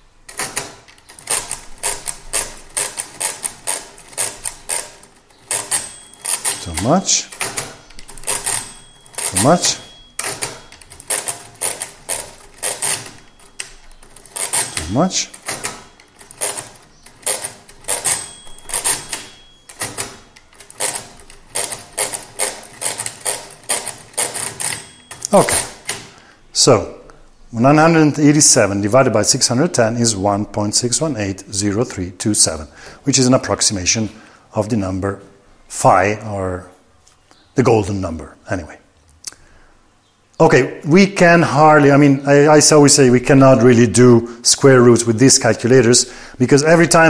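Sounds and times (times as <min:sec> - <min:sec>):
mechanical calculator clattering: 0:00.3 - 0:26.1
metallic clicks: 0:00.3 - 0:26.2.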